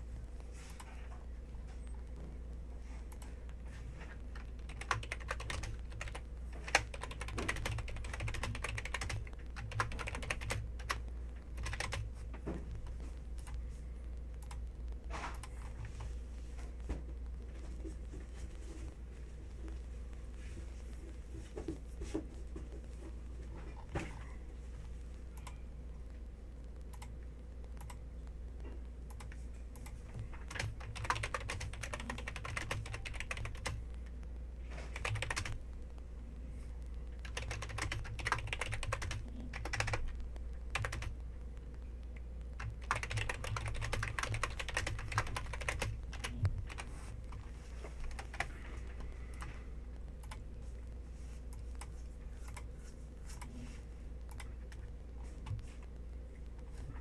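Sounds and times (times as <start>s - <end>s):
keyboard typing: 3.1s - 13.6s, 14.2s - 16.2s, 26.7s - 28.0s, 29.0s - 36.0s, 37.0s - 50.5s, 54.2s - 56.0s.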